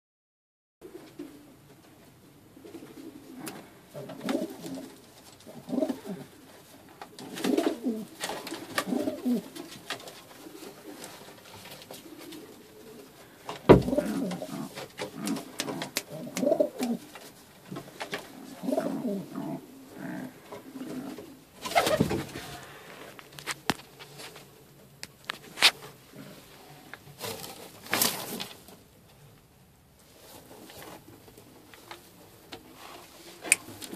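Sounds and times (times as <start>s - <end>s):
pigeons cooing: 0.8s - 22.9s.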